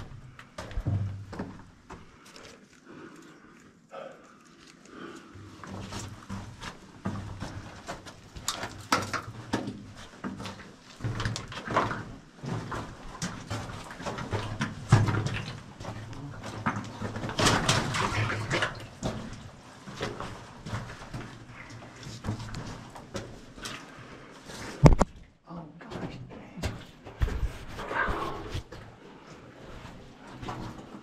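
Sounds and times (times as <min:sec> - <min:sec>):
footsteps on wet rocky ground: 0:00.0 - 0:03.4, 0:04.5 - 0:25.3
person breathing: 0:02.0 - 0:05.7
scraping and splashing: 0:04.3 - 0:25.0.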